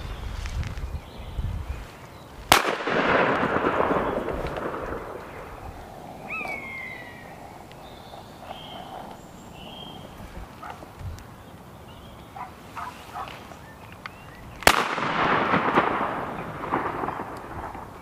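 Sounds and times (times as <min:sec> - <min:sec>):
shotgun shot echoing: 0:02.5 - 0:05.6, 0:14.6 - 0:18.0.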